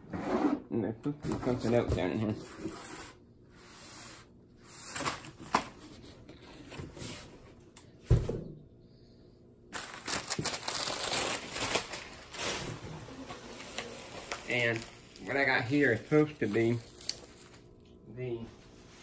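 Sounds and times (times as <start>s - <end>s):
paper and bubble-wrap crinkling: 9.7s - 17.8s.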